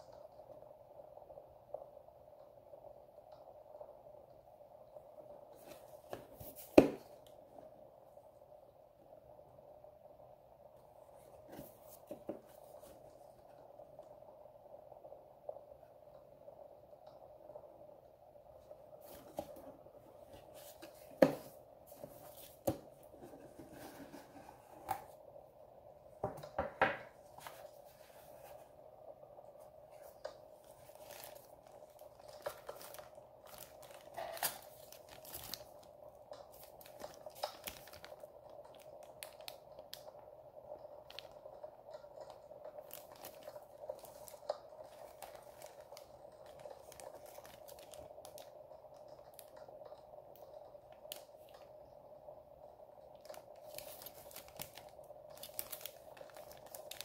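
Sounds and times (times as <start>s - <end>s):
steady faint hum: 0.0s - 57.0s
plastic bags crinkling: 20.2s - 24.2s, 29.9s - 40.1s, 41.0s - 49.6s, 53.1s - 57.0s.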